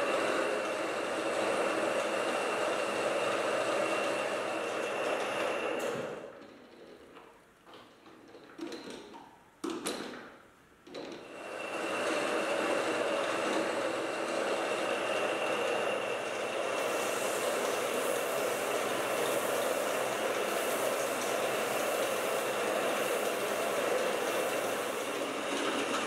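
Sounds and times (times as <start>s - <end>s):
metal lathe running: 0.0s - 6.3s, 11.3s - 26.0s
abrasive strip hissing on metal: 16.7s - 25.5s.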